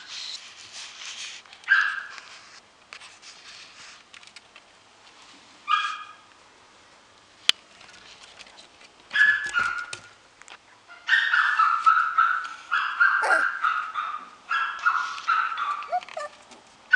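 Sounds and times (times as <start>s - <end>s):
puppy whining: 13.0s - 13.6s, 14.9s - 16.5s.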